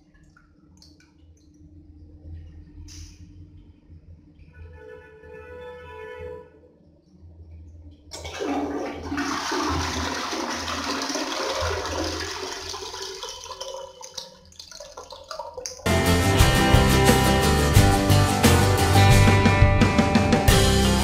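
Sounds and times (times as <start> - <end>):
toilet flushing: 8.1 - 15.9.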